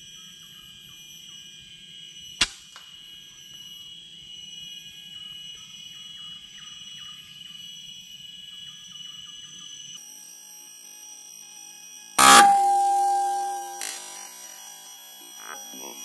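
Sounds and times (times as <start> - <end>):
high-pitched drone: 12.2 - 14.4.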